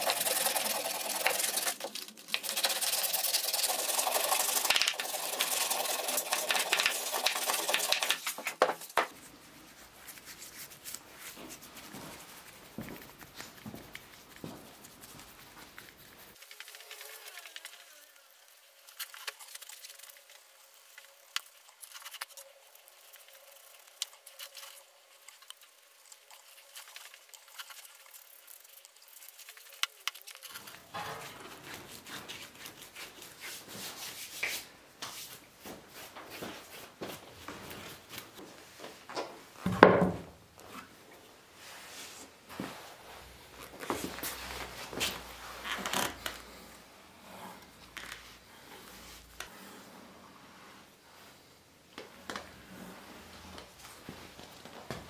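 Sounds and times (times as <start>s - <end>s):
bristle brush scratching wood: 0.0s - 36.8s.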